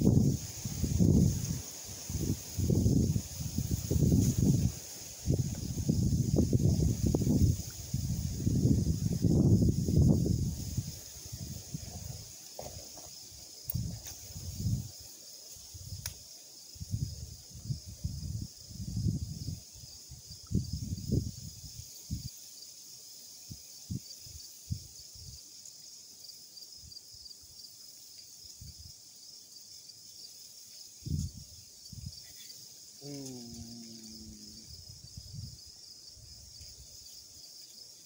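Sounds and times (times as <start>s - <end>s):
wind buffeting the microphone: 0.0s - 12.3s, 13.7s - 15.0s, 16.8s - 22.3s, 31.0s - 32.2s
insects chirping: 0.0s - 38.0s.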